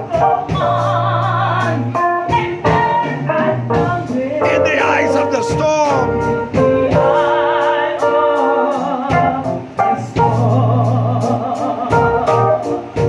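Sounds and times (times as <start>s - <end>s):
woman singing gospel with vibrato: 0.0s - 13.0s
sustained organ chords: 4.4s - 12.8s.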